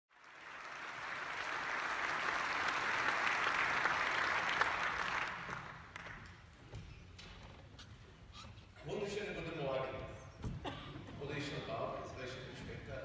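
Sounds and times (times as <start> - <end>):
audience applauding: 0.1 - 6.4.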